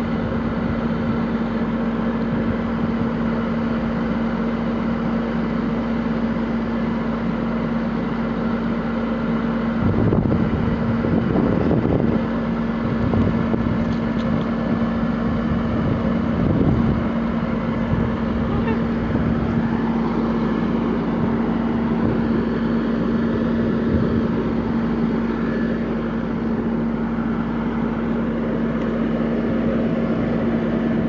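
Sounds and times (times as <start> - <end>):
fire engine engine droning: 0.0 - 31.0
deep uneven rumble: 9.8 - 31.0.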